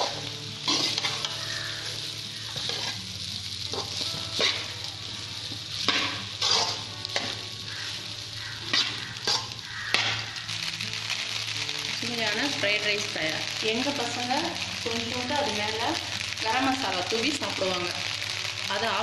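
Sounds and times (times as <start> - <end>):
metal spatula scraping pan: 0.0 - 1.8, 2.5 - 3.1, 3.7 - 4.7, 5.8 - 8.0, 8.6 - 10.2
rice sizzling in metal pan: 0.0 - 19.0.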